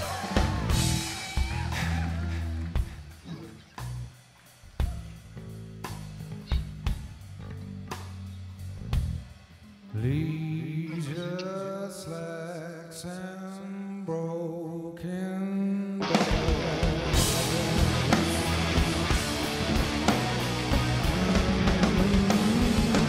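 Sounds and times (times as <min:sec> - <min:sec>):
rock band playing: 0:00.0 - 0:09.4, 0:16.0 - 0:23.0
man singing: 0:09.9 - 0:18.8, 0:20.7 - 0:23.0.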